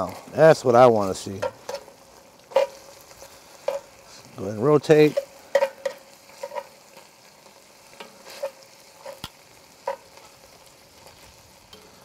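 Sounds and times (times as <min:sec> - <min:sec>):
faint sizzle: 0:00.0 - 0:12.0
metal tongs clinking on iron pot: 0:01.3 - 0:02.9, 0:03.6 - 0:03.9, 0:04.9 - 0:06.8, 0:07.9 - 0:10.3, 0:11.6 - 0:12.0.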